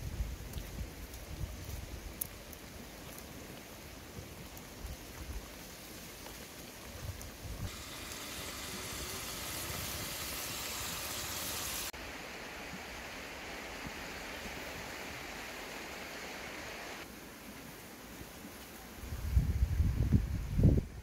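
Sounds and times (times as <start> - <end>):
fish frying in a wok: 7.6 - 12.0.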